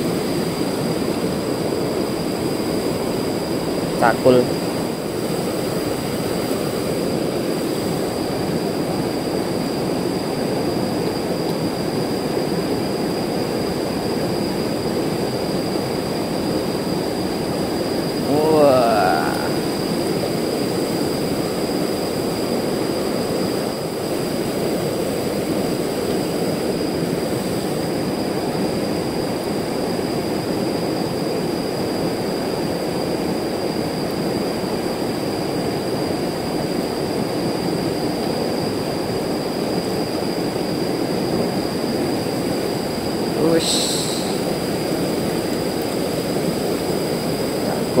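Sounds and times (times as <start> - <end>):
river water rushing over rocks: 17.4 - 28.3.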